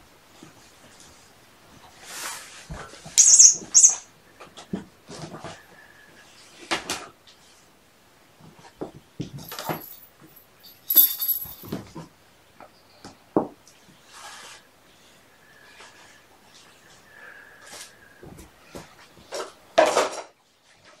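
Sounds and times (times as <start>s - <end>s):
rustles taps and clicks: 9.4s - 11.8s.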